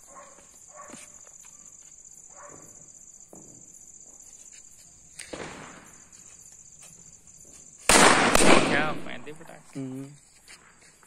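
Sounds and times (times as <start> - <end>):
crickets chirring: 0.0 - 11.0
firecracker pop and crackle: 5.1 - 6.0, 7.8 - 9.5.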